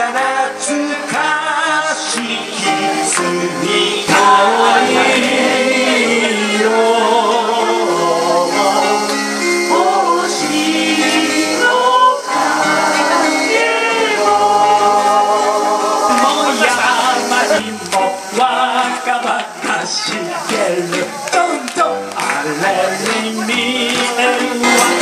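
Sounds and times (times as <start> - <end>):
acoustic guitar: 0.0 - 25.0
group singing: 0.0 - 25.0.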